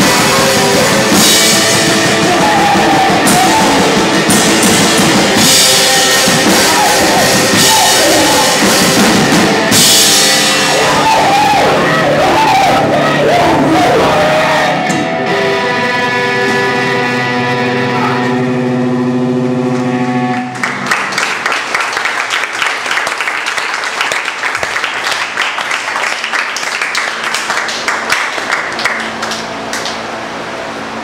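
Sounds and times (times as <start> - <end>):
crowd clapping and cheering: 0.0 - 9.8, 10.5 - 14.9, 19.7 - 30.2
electric guitar chord ringing: 8.5 - 20.9.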